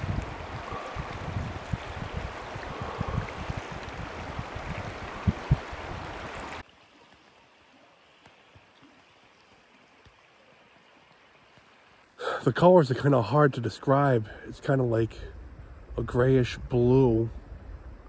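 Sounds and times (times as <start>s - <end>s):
wind gusting on microphone: 0.0s - 6.6s
stream rushing: 0.0s - 15.1s.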